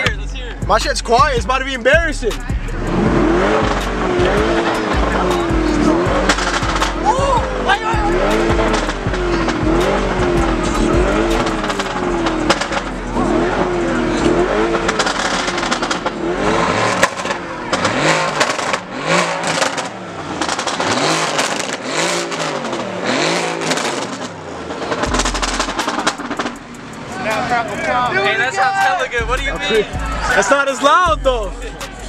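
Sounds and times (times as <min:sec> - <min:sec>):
car engine revving: 0:00.0 - 0:32.0
exhaust crackles: 0:00.0 - 0:32.0.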